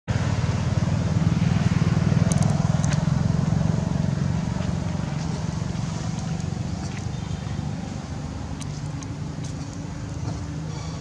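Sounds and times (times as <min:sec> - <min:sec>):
vehicle engine rumble: 0:00.1 - 0:11.0.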